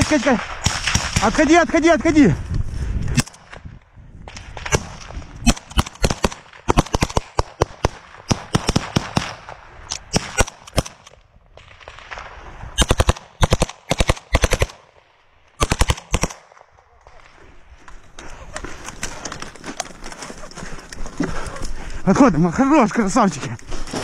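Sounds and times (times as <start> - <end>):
rifle gunshots: 0.0 - 1.6, 4.3 - 17.3.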